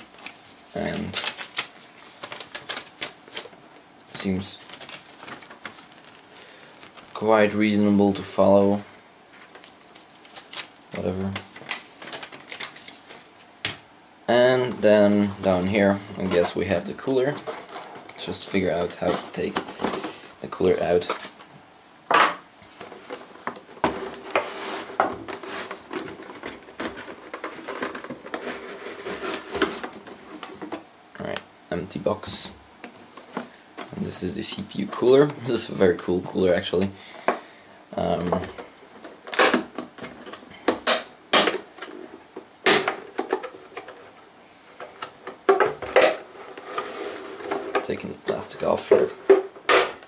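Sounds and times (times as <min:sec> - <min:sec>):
packaging rustling: 0:00.0 - 0:13.5, 0:14.5 - 0:21.5, 0:22.6 - 0:30.9
box sliding on wooden desk: 0:46.5 - 0:47.8.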